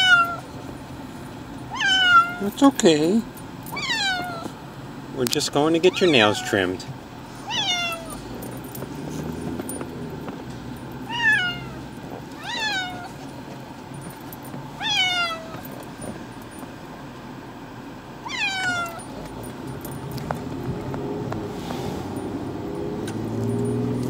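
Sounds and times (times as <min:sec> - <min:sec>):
cat meowing in distress: 0:00.0 - 0:00.5, 0:01.7 - 0:02.5, 0:03.7 - 0:04.6, 0:05.9 - 0:06.8, 0:07.4 - 0:08.2, 0:11.1 - 0:11.8, 0:12.4 - 0:13.2, 0:14.8 - 0:15.6, 0:18.2 - 0:19.2.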